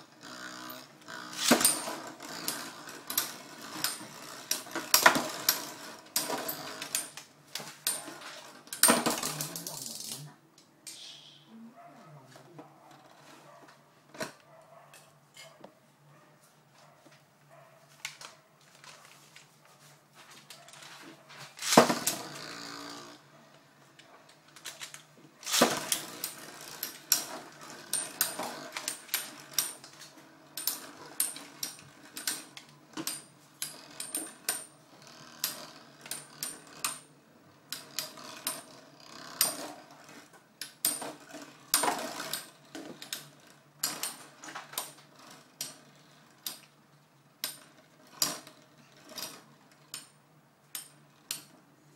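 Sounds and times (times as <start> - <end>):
spinning top launch: 1.2 - 6.9, 21.6 - 22.7, 25.4 - 29.4
spinning tops clinking: 7.8 - 10.3.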